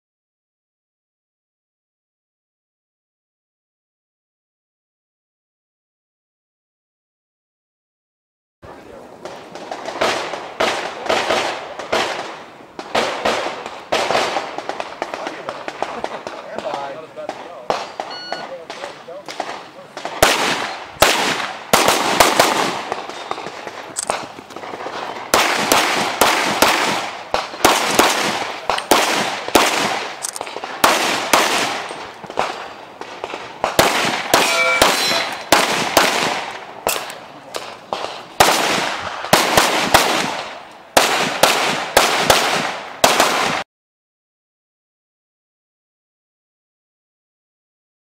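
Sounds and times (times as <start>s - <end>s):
rapid pistol fire: 9.2s - 43.6s.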